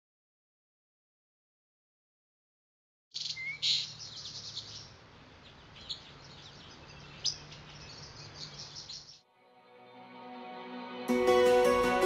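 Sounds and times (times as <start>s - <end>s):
small birds chirping: 3.1s - 9.2s
soft music: 9.3s - 12.0s.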